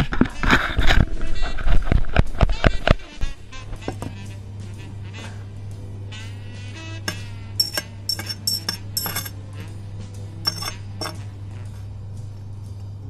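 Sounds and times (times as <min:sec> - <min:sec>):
steady low hum: 0:00.0 - 0:13.0
tweezers tapping metal tray: 0:07.1 - 0:09.4, 0:10.5 - 0:11.2.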